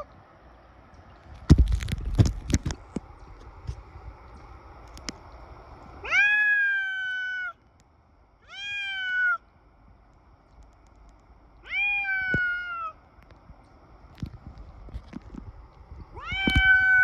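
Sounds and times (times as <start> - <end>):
cat meowing: 8.5 - 9.4, 11.6 - 13.0, 16.2 - 17.0.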